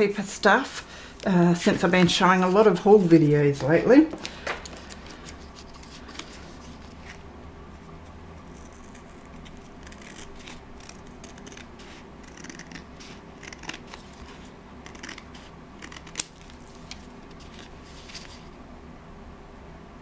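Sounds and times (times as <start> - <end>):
scissors snipping card: 8.5 - 18.3.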